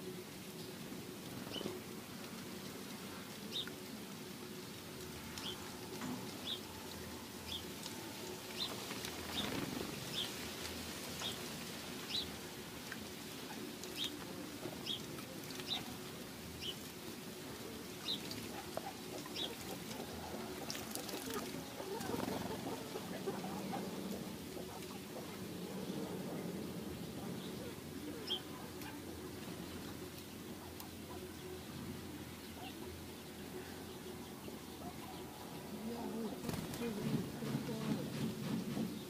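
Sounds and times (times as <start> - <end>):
sparrows chirping: 1.4 - 1.8, 5.2 - 7.8, 8.4 - 12.5, 13.4 - 17.1, 17.9 - 38.2
bird splashing in water: 18.1 - 23.8.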